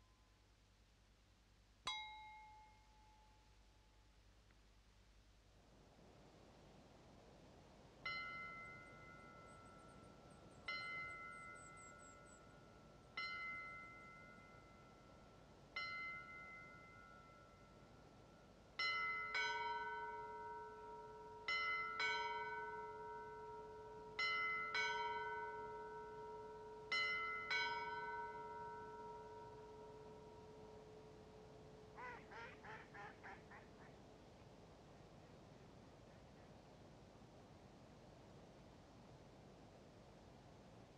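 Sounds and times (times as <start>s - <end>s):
church bells ringing: 8.0s - 11.6s, 18.8s - 31.8s.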